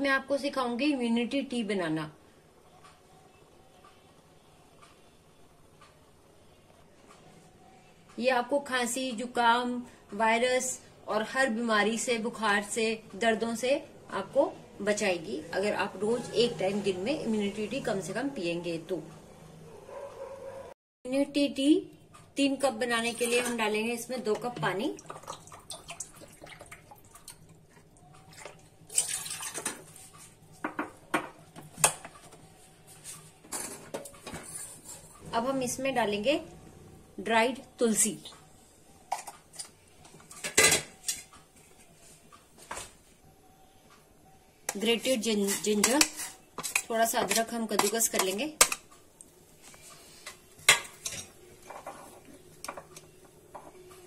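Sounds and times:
steel kitchenware clinking: 0:23.0 - 0:24.6, 0:44.7 - 0:48.9, 0:50.2 - 0:52.9.

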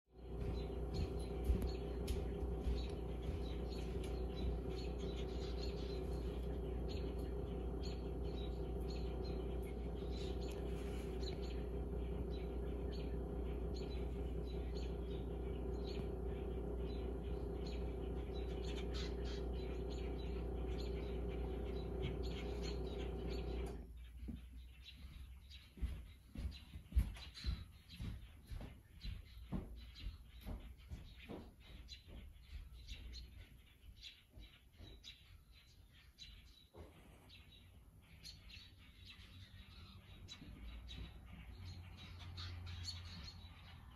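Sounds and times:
steady low hum: 0:00.1 - 0:24.1
birds alarm calls: 0:00.3 - 0:23.8.

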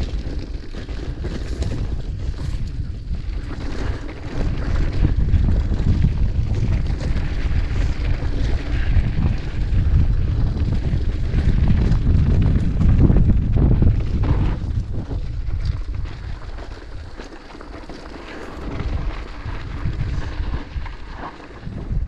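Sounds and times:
bike knocks and rattles: 0:00.0 - 0:22.0
wind buffeting microphone: 0:00.0 - 0:22.0.

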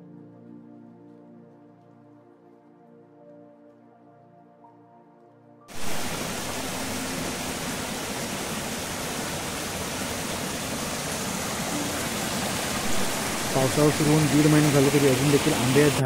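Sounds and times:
faint music: 0:00.0 - 0:08.1, 0:11.5 - 0:16.0
stream rushing over rocks: 0:05.7 - 0:16.0.

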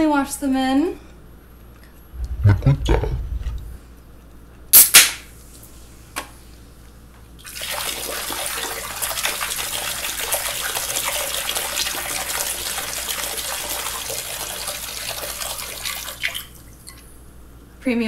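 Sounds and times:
water pouring into a sink: 0:07.4 - 0:17.0.

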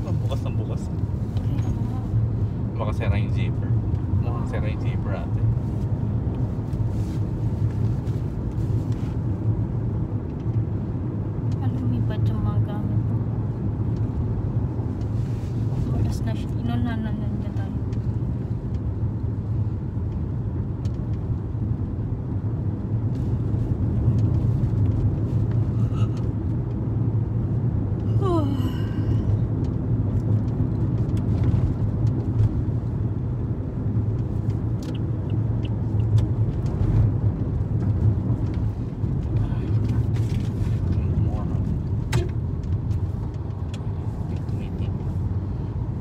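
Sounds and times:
car road noise inside cabin: 0:00.0 - 0:46.0.

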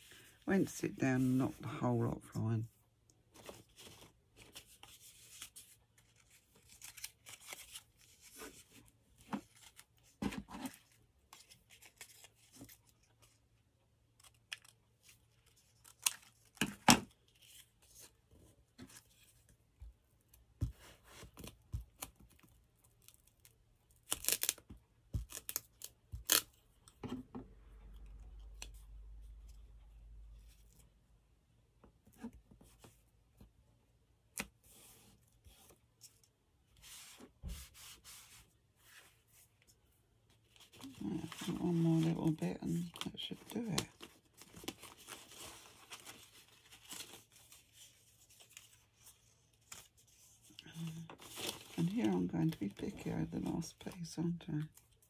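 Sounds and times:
paper rustling and crinkling: 0:03.2 - 0:13.5, 0:36.8 - 0:53.9.

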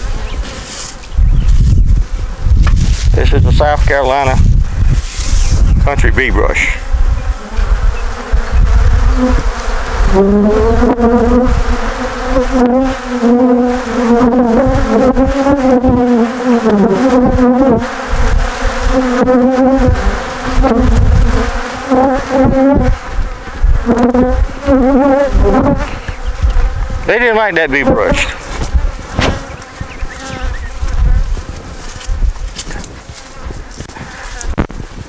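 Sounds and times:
bees buzzing loudly: 0:00.0 - 0:35.0
single bees flying past: 0:06.5 - 0:32.2, 0:33.0 - 0:34.7.

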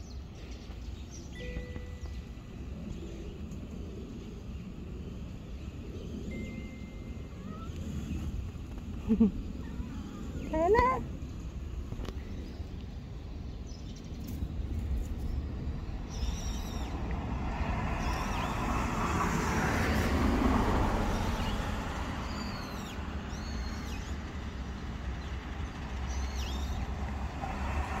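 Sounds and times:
passing vehicle rush: 0:14.4 - 0:28.0.

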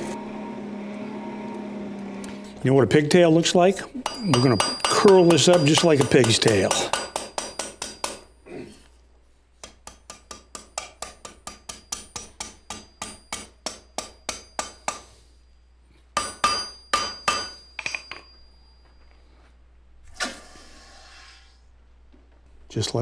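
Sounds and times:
hammer striking steel on anvil: 0:04.0 - 0:08.4, 0:09.6 - 0:15.3, 0:16.2 - 0:18.4.

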